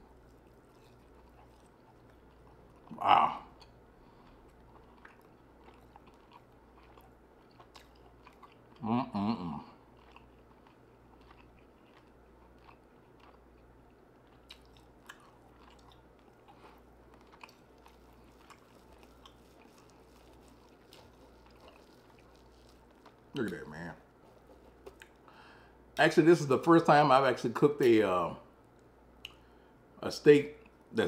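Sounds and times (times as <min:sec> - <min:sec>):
chewing with mouth clicks: 0:00.0 - 0:25.4
person humming in enjoyment: 0:02.9 - 0:03.5, 0:08.8 - 0:09.7.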